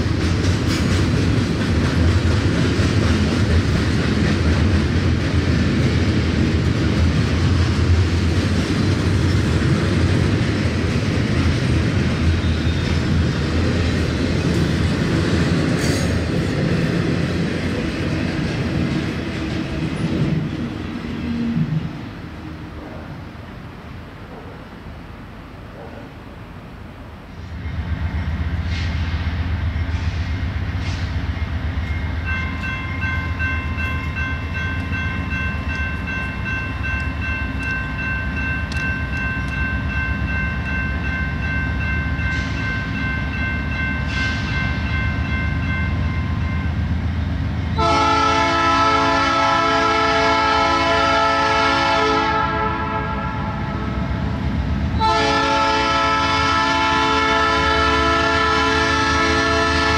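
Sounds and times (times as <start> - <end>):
train air horn blast: 47.8 - 53.8, 55.0 - 59.9.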